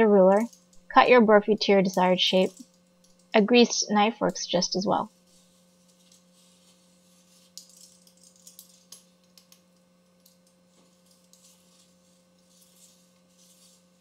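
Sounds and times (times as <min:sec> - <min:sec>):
steady low hum: 0:00.0 - 0:14.0
pizza cutter wheel scraping: 0:10.8 - 0:14.0.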